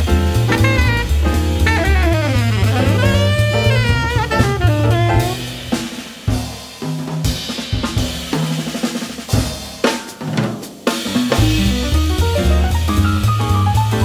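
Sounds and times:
snare drum hits: 0:00.0 - 0:06.1, 0:09.3 - 0:14.0
bass drum hits: 0:00.0 - 0:06.5, 0:11.2 - 0:14.0.

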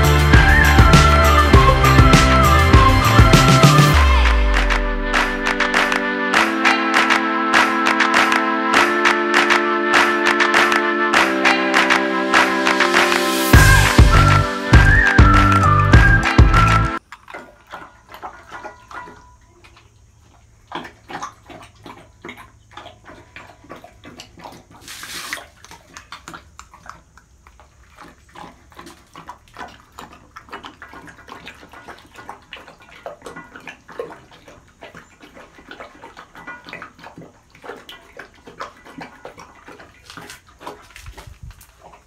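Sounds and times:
dog lapping from steel bowl: 0:17.0 - 0:42.0.

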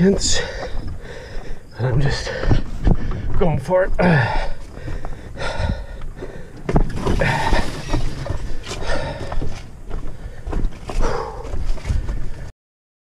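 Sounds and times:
person breathing hard: 0:00.3 - 0:03.4, 0:04.0 - 0:12.5
thumps and scuffs: 0:06.2 - 0:12.4.

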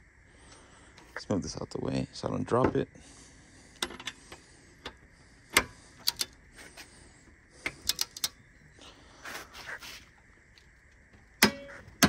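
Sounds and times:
torque wrench clicking: 0:05.6 - 0:06.4, 0:07.7 - 0:08.4.

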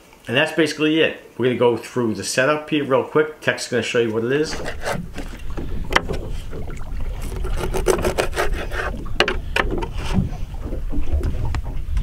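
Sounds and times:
wind and water against boat hull: 0:03.9 - 0:12.0
sharp knocks and clicks: 0:04.5 - 0:06.4, 0:07.3 - 0:10.2.

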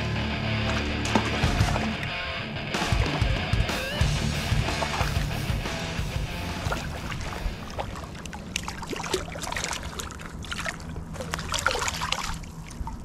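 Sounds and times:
fish splashing in shallow water: 0:04.5 - 0:13.0.

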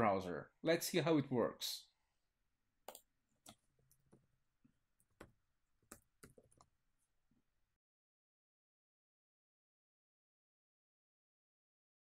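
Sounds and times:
keyboard typing: 0:05.0 - 0:06.7.

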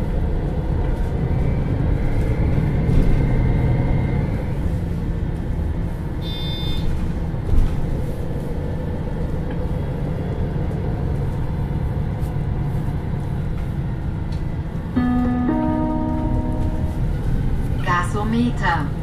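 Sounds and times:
bus engine rumble: 0:00.0 - 0:19.0
short high-pitched tone: 0:15.0 - 0:17.3.

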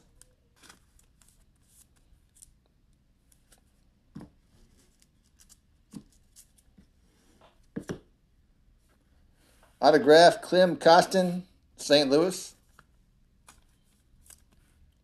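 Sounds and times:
trading cards clicking and rustling: 0:12.6 - 0:14.7.

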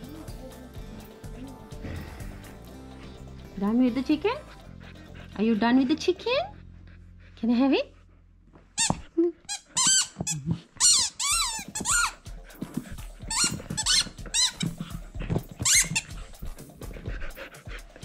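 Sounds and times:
rubber squeaker toy squeaking: 0:08.8 - 0:12.2, 0:13.3 - 0:16.2.

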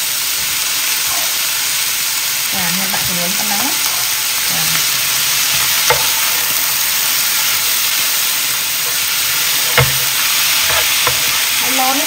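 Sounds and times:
noodles sizzling in a pan: 0:00.0 - 0:12.0
plastic spatula stirring: 0:08.8 - 0:11.5.

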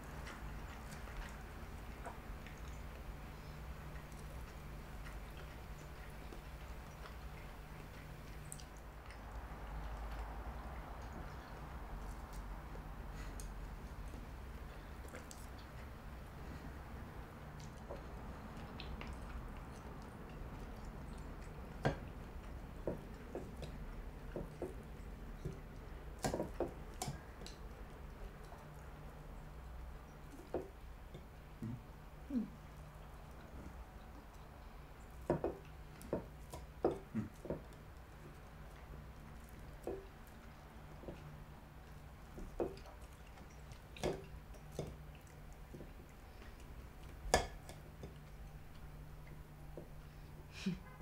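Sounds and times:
low steady hum: 0:00.0 - 0:51.0.

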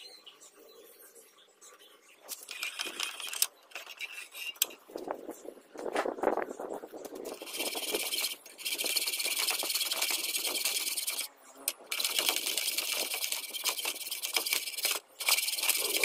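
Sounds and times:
handheld tool buzzing on steel: 0:07.3 - 0:16.0.

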